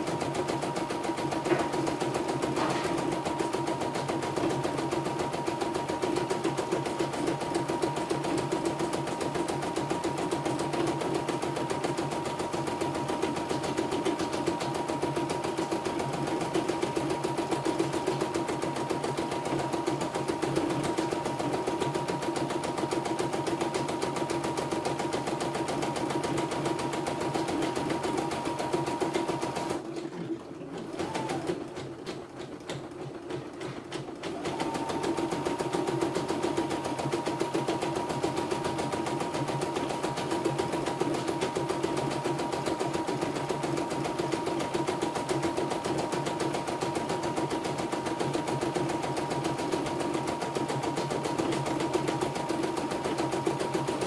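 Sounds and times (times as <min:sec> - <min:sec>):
embroidery machine stitching: 0:00.0 - 0:54.0.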